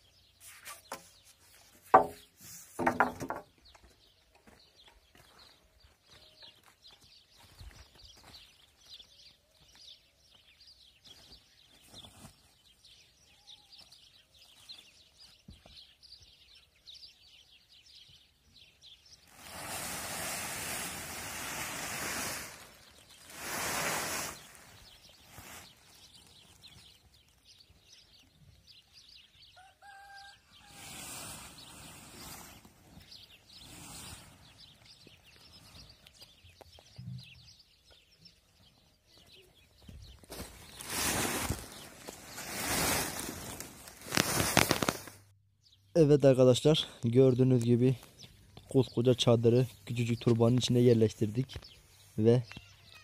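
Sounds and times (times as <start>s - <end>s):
small birds chirping: 0.0s - 53.0s
rooster crowing: 29.6s - 30.8s.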